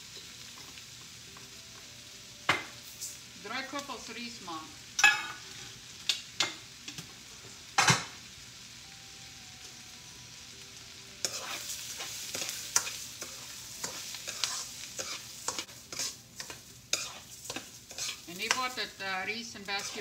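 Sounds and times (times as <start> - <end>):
rice sizzling in a frying pan: 0.0 - 20.0
metal tongs scraping a pan: 11.2 - 20.0.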